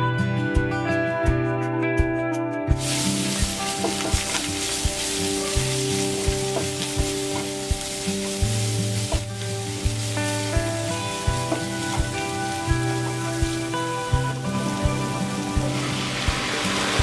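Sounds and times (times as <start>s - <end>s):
background music with beat: 0.0s - 17.0s
wooden spatula stirring: 2.8s - 14.0s
onions sizzling in oil: 2.8s - 17.0s.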